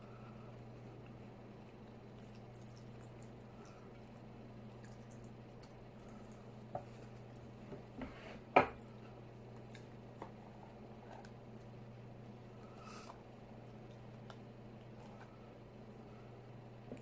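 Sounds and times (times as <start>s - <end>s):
steady low hum: 0.0s - 17.0s
squishy chewing: 0.8s - 7.6s.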